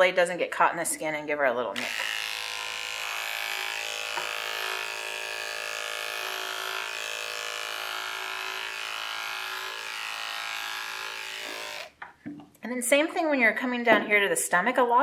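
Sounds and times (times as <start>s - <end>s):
electric clipper humming: 1.8s - 12.0s.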